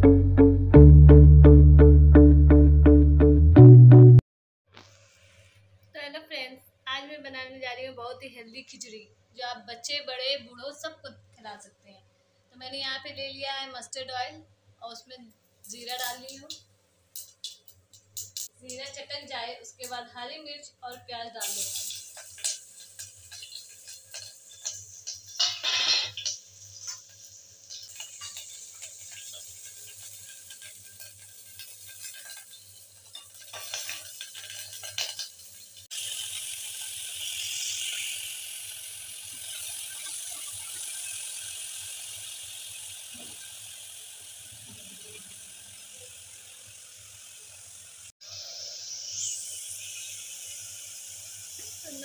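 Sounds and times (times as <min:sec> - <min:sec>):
steady sizzling hiss: 0:04.8 - 0:52.0
food frying and sputtering in oil: 0:15.6 - 0:19.2, 0:20.9 - 0:52.0.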